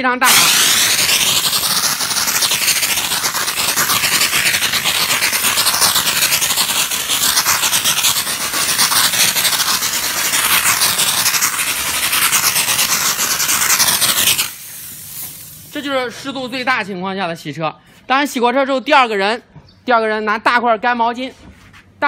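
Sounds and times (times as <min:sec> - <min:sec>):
steam gun hissing: 0:00.0 - 0:16.3.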